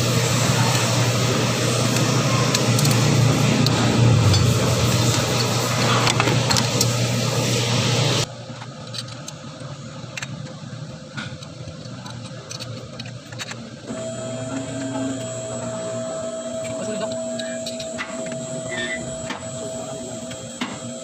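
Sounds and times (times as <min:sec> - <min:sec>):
electrical hum tone: 0:00.0 - 0:08.3, 0:13.9 - 0:21.0
machine humming: 0:00.0 - 0:08.3, 0:13.9 - 0:21.0
metallic clicks on engine parts: 0:11.2 - 0:13.7.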